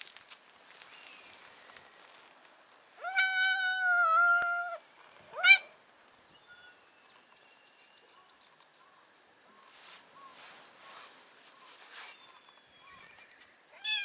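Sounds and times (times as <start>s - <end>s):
cat meowing: 3.0s - 4.8s, 13.8s - 14.0s.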